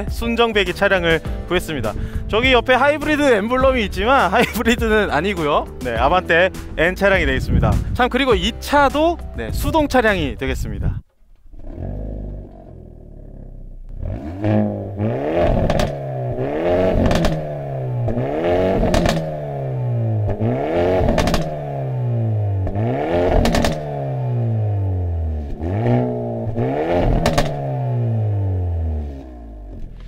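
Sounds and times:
exhaust cracks: 0.0s - 30.0s
car engine revving: 11.1s - 30.0s.

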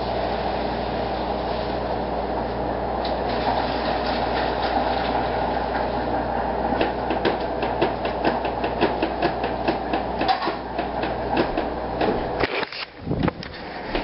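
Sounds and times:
steady low whir: 5.0s - 14.0s.

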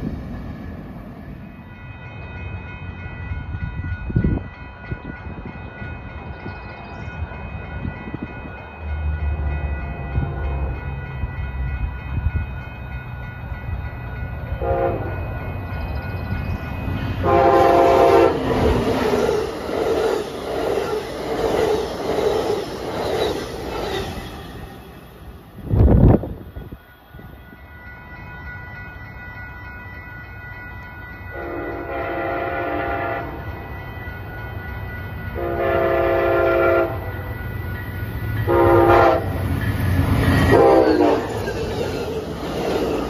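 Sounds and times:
train rumbling: 0.0s - 43.0s
train horn blasts: 14.6s - 15.3s, 17.2s - 18.6s, 31.3s - 33.6s, 35.4s - 37.3s, 38.4s - 39.4s, 40.5s - 41.5s.

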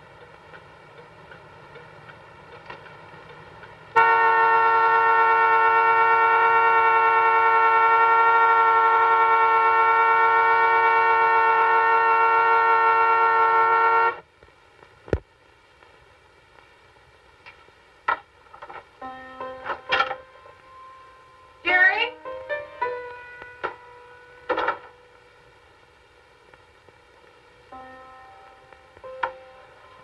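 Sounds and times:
car horn steady note: 4.0s - 14.2s.

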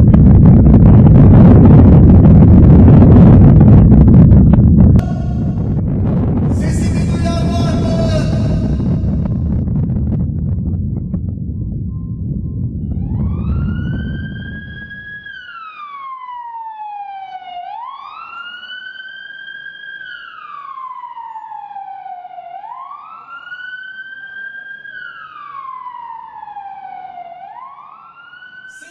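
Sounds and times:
deep rumble: 0.0s - 15.1s
siren wailing: 5.0s - 10.2s, 11.5s - 28.9s.

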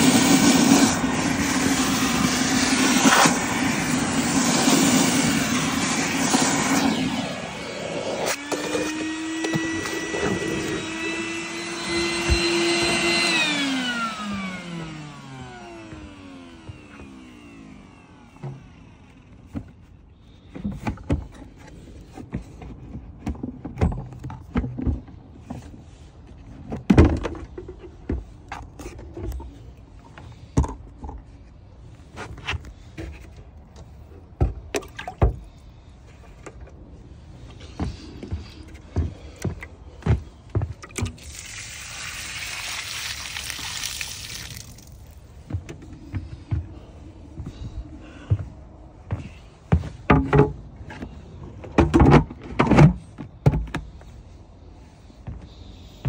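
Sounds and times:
knocks and clunks of shop vac: 8.2s - 31.3s, 32.2s - 35.6s, 37.5s - 41.2s, 45.4s - 54.2s
water pouring out of tank: 41.0s - 45.2s.

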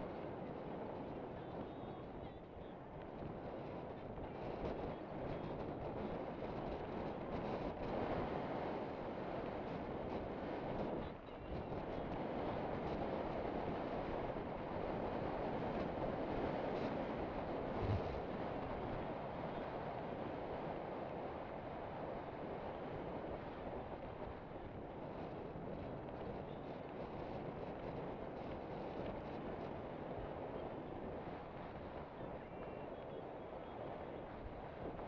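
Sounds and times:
wind rushing over microphone: 0.0s - 35.0s.

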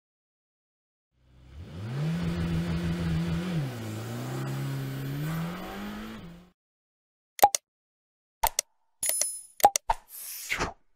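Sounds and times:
car engine revving: 1.2s - 6.6s.

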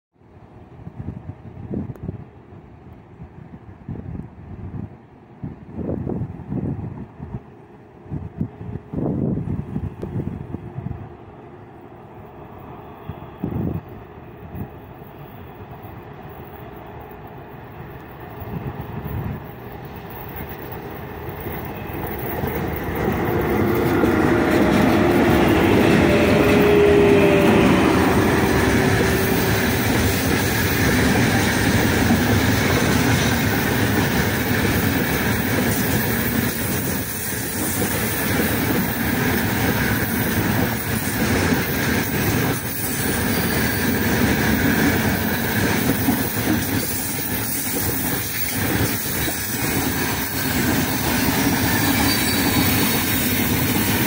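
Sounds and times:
electric locomotive passing: 0.4s - 54.0s
freight wagons clickety-clack: 17.2s - 25.5s, 29.0s - 54.0s.

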